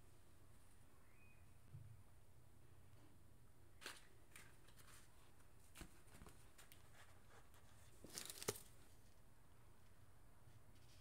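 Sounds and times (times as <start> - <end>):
paper packaging rustling: 5.7 - 8.9.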